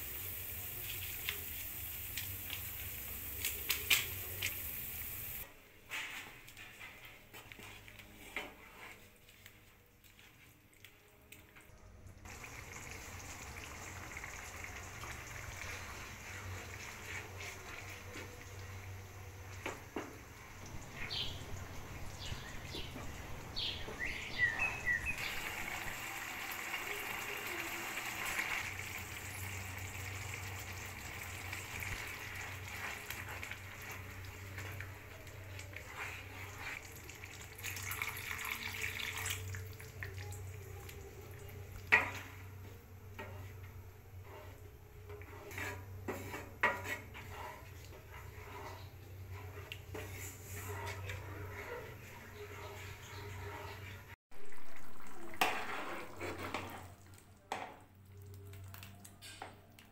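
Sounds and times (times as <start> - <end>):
soup sloshing and sizzling: 12.2 - 59.9
spatula scraping and tapping pan: 43.1 - 54.1, 55.4 - 56.9.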